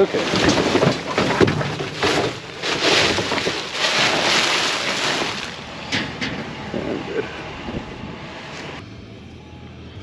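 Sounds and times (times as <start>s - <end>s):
plastic bags and boxes rustling: 0.0s - 5.6s.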